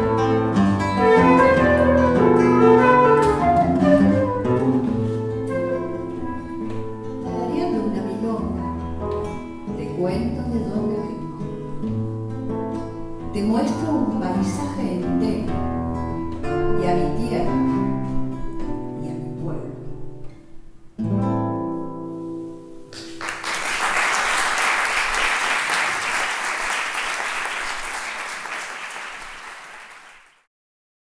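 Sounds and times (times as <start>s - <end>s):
classical guitar: 0.0s - 23.4s
flute: 0.9s - 6.6s
audience applauding: 23.0s - 30.5s.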